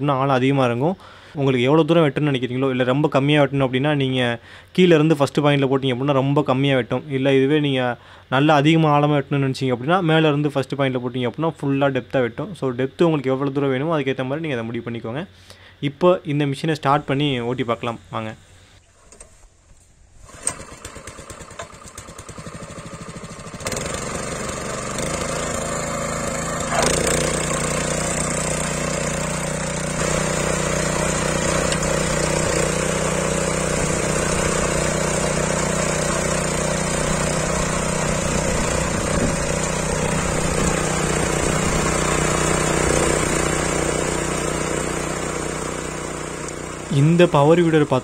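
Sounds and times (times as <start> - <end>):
petrol engine starting and running: 20.2 - 48.0.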